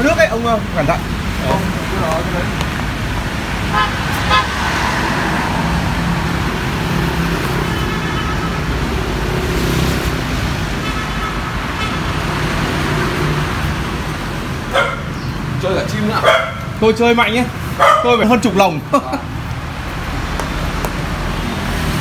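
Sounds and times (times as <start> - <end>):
vehicle engines passing: 0.0 - 22.0
distant horn toots: 3.6 - 5.0.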